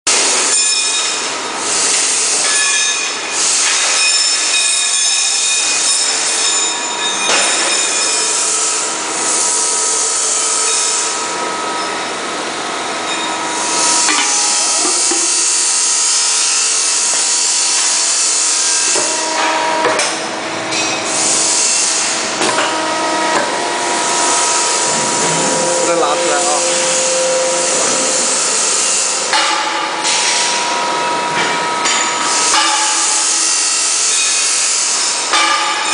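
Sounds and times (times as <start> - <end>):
hydraulic power unit whining: 0.1 - 35.9
hydraulic hissing surges: 13.5 - 31.0.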